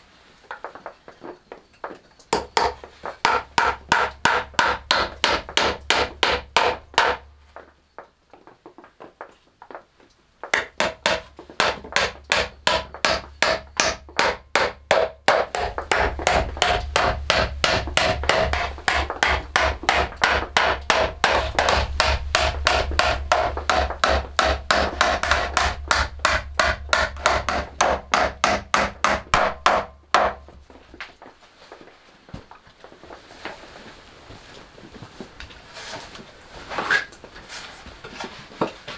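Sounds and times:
hammer driving nails into wood: 2.3 - 7.2, 10.5 - 30.4.

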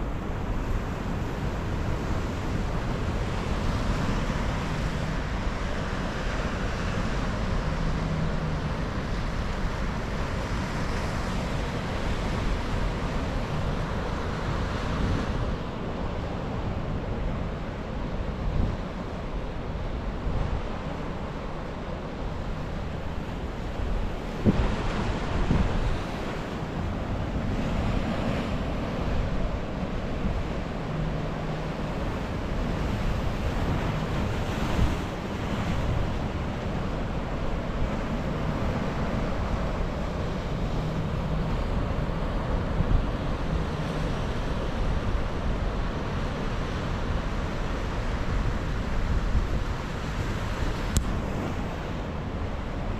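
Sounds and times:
surf washing over rocks: 0.0 - 52.9
wind buffeting microphone: 23.0 - 30.9.

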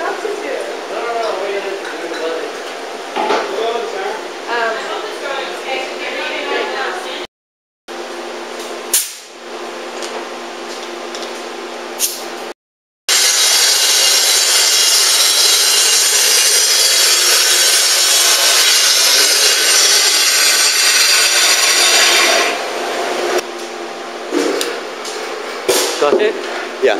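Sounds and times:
panel saw cutting: 13.1 - 22.6.

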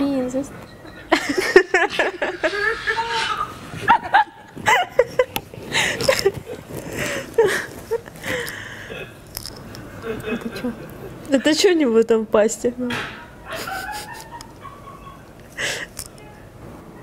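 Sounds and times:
women giggling: 0.6 - 8.5, 9.9 - 11.7, 13.2 - 15.9.

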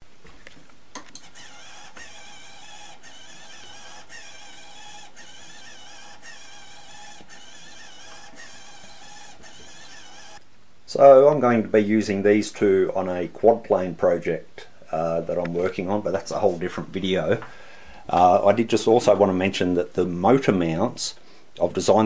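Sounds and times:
servo motor whining: 1.2 - 10.4.

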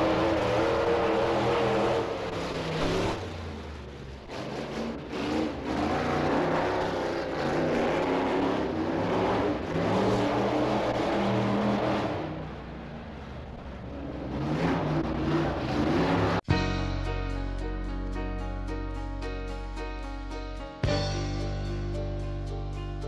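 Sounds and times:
stock car engine revving: 4.0 - 12.6.

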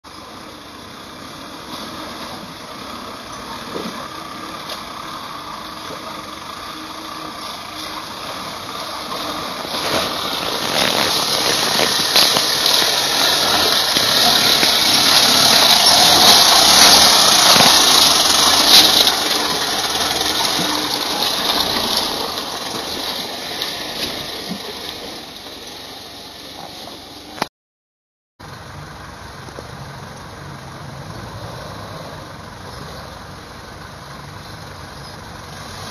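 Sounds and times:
diesel engine pulling truck: 0.0 - 27.5, 28.4 - 35.9
tyres splashing through mud: 1.5 - 27.4.

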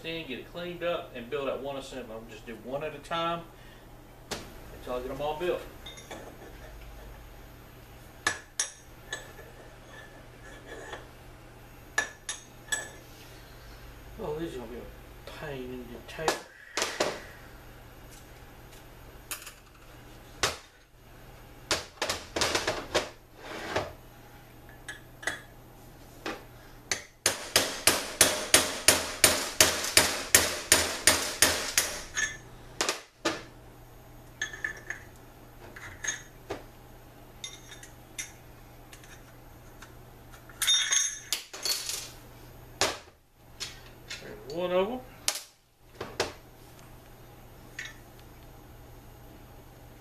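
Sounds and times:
hammer beating on steel driver: 26.9 - 32.0.

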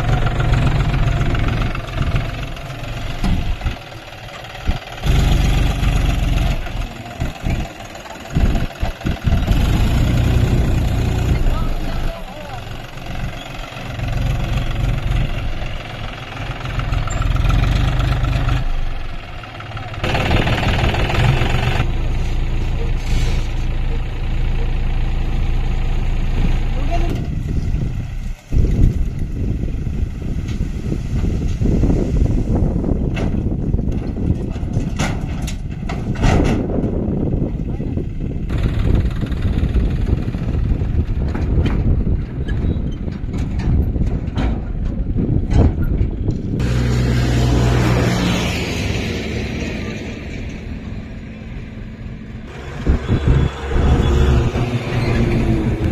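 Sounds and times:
tractor diesel engine running: 0.0 - 55.9
wind on microphone: 27.1 - 48.4, 52.5 - 55.9.

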